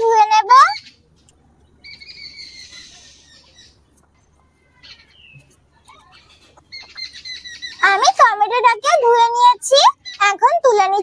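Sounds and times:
bird calling: 0:00.5 - 0:08.2.

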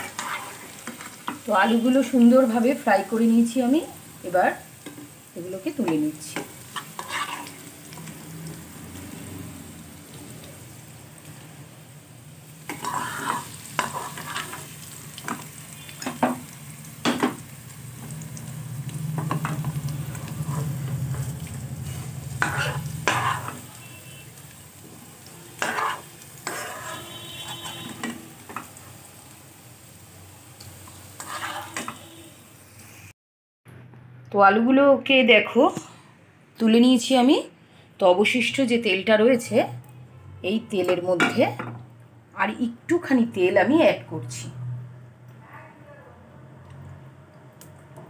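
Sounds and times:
plastic spatula scraping a pan: 0:00.0 - 0:01.0, 0:06.8 - 0:07.6, 0:12.7 - 0:14.6, 0:22.4 - 0:23.6, 0:25.6 - 0:28.2, 0:31.2 - 0:32.1
potato wedges sizzling in oil: 0:00.0 - 0:33.1.

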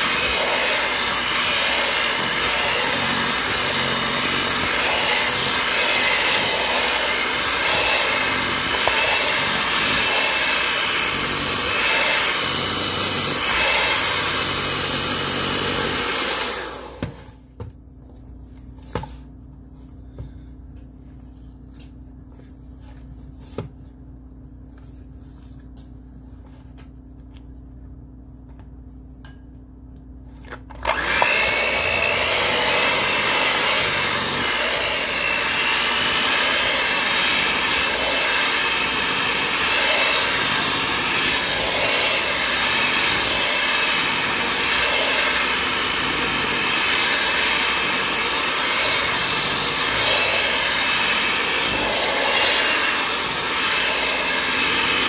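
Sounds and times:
electric mixer running: 0:00.0 - 0:17.4, 0:30.8 - 0:55.0.

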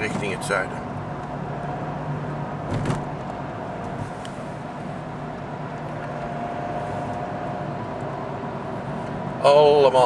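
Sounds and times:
car engine and tyre noise: 0:00.0 - 0:10.0.

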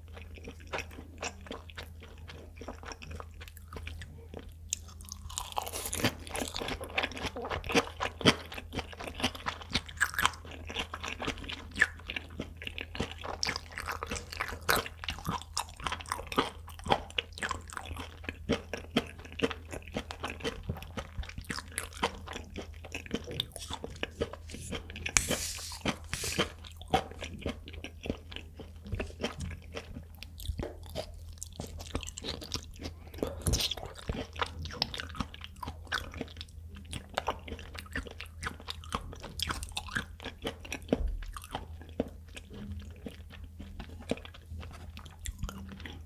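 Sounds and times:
close-miked chewing: 0:00.0 - 0:46.0.

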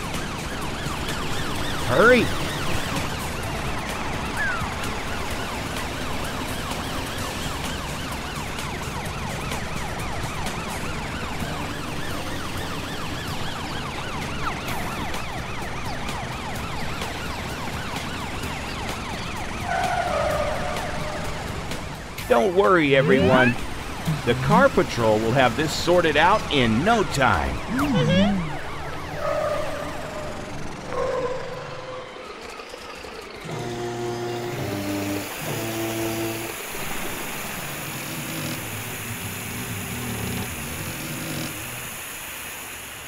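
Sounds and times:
cartoon sirens wailing: 0:00.0 - 0:41.9
held tone: 0:22.9 - 0:24.6, 0:26.9 - 0:28.6.

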